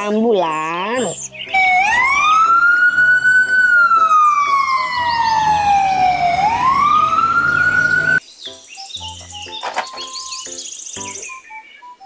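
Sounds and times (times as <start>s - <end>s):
ambulance siren wailing: 1.5s - 8.2s.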